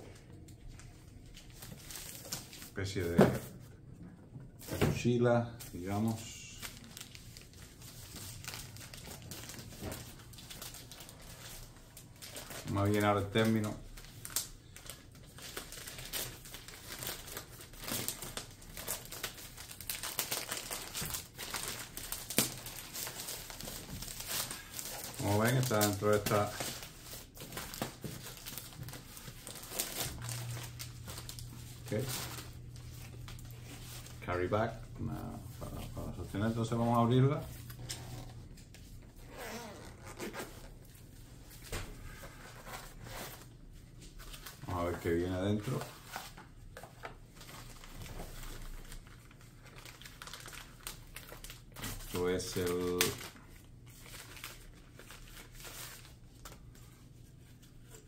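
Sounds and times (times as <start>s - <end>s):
plastic bag crinkling: 5.7s - 40.7s, 47.3s - 56.8s
zipper being pulled open: 39.2s - 40.6s.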